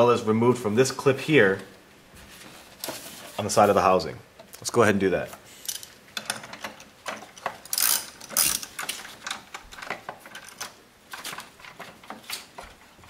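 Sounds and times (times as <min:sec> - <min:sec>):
socket wrench ratcheting: 0:05.7 - 0:10.7.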